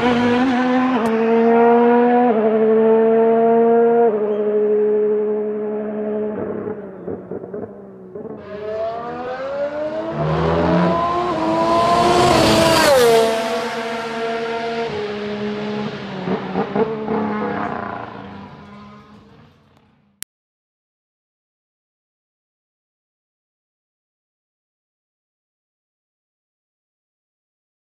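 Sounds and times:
racing car engine accelerating: 0.0s - 20.2s.

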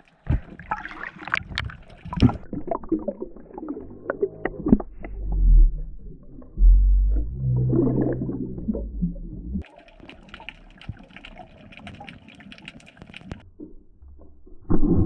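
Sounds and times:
water churning and bubbling: 0.0s - 13.5s
underwater crackle of fine clicks: 9.6s - 13.4s.

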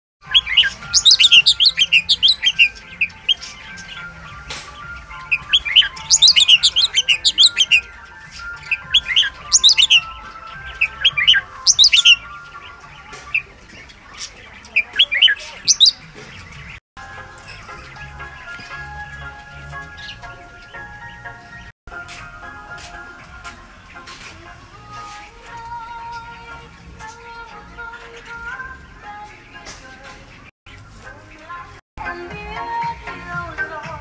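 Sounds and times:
starling chirps and whistles: 0.2s - 16.7s.

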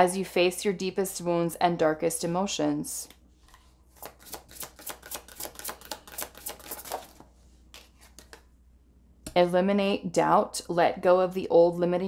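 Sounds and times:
cards being shuffled by hand: 3.4s - 8.5s.

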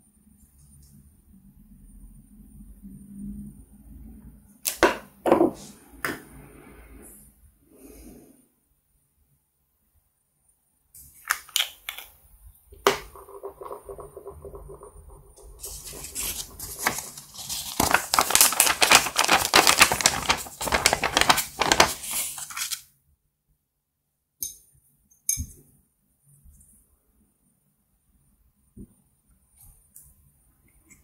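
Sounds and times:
paper bill crinkling: 15.4s - 22.8s.

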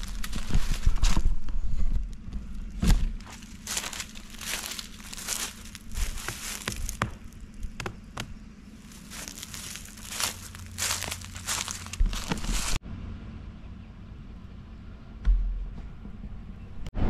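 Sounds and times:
footsteps crunching dry leaves: 0.0s - 7.7s, 8.7s - 12.8s.

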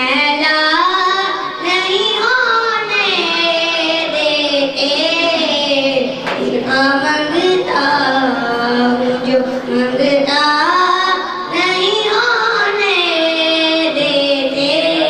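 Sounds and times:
boy singing into a microphone: 0.0s - 15.0s.

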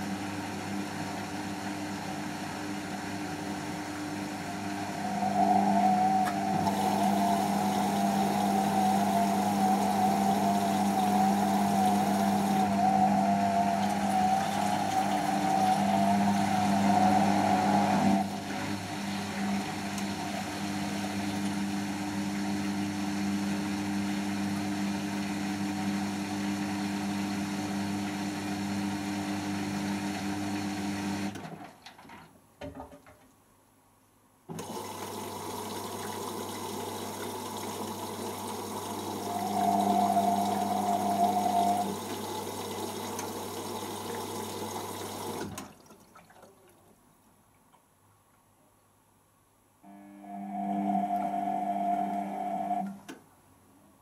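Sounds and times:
washing machine hum: 0.0s - 31.7s, 34.5s - 47.2s
running water: 4.4s - 21.8s, 34.6s - 47.3s.

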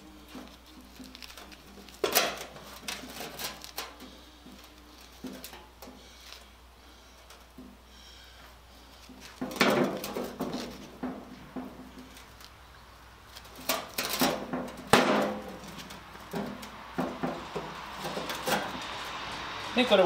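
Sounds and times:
steel panels clanking: 1.4s - 4.2s, 9.2s - 12.1s, 13.5s - 19.0s.

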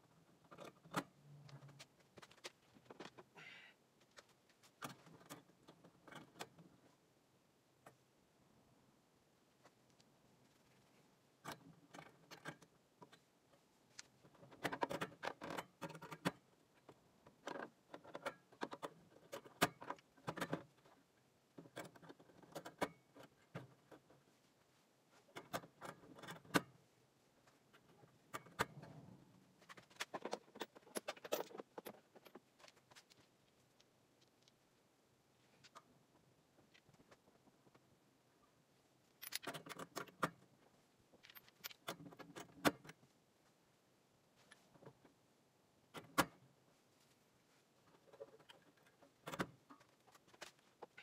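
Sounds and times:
metal sockets clinking on rails: 39.2s - 40.4s.

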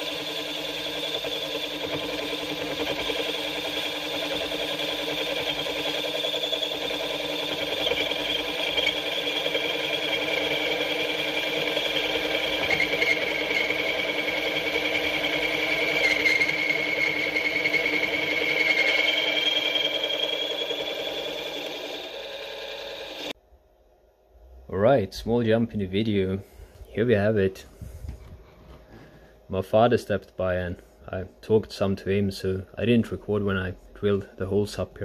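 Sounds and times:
milling machine cutting metal: 0.0s - 23.4s.

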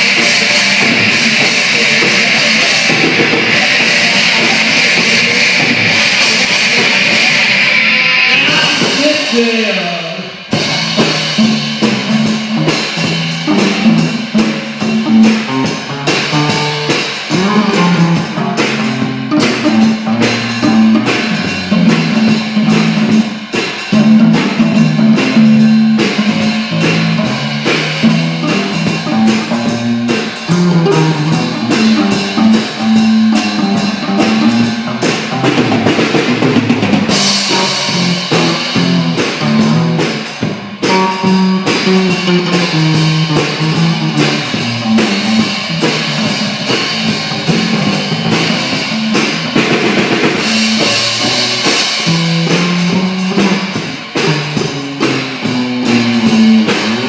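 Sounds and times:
cymbals washing: 0.0s - 57.0s
electric bass line: 0.0s - 57.0s
live rock band playing: 0.0s - 57.0s.

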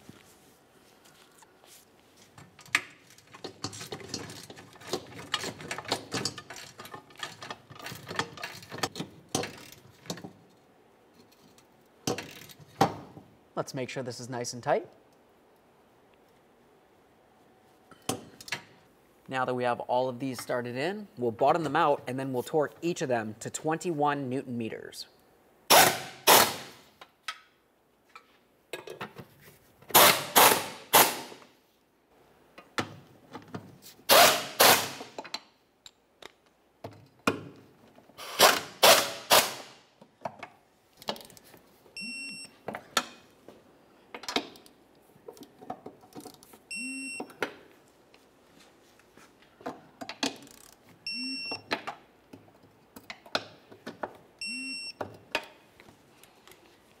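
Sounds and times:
torque wrench beeps: 42.0s - 42.5s, 46.7s - 47.3s, 51.0s - 51.6s, 54.4s - 55.0s.

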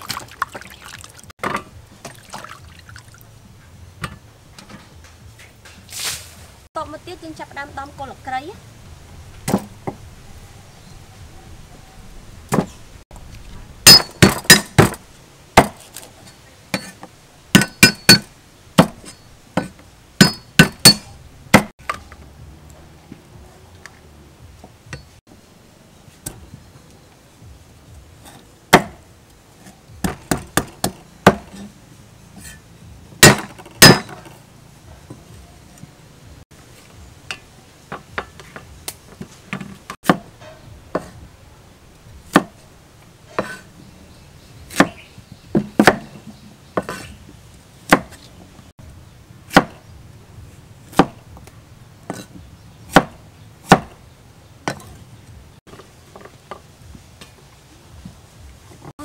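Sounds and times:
cleaver chopping on wooden block: 13.9s - 15.0s, 15.6s - 15.8s, 17.6s - 21.7s, 28.7s - 29.0s, 30.0s - 31.7s, 33.2s - 34.2s, 40.0s - 40.3s, 42.3s - 42.6s, 44.7s - 45.0s, 45.6s - 46.2s, 47.9s - 48.2s, 49.5s - 49.8s, 50.9s - 51.2s, 52.9s - 54.0s.

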